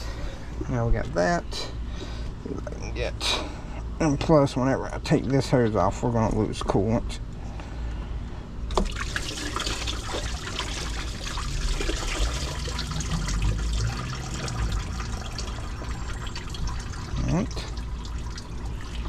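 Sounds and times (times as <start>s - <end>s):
fluid pouring into a pan: 8.8s - 19.0s.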